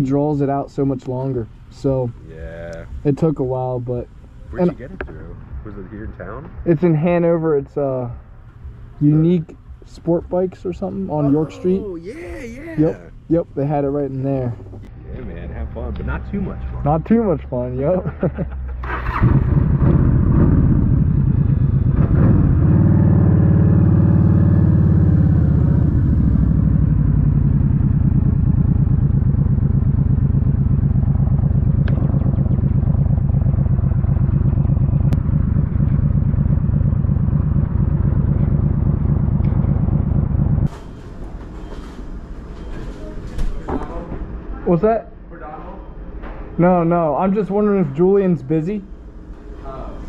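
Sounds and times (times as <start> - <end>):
motorcycle engine revving: 18.8 - 40.7.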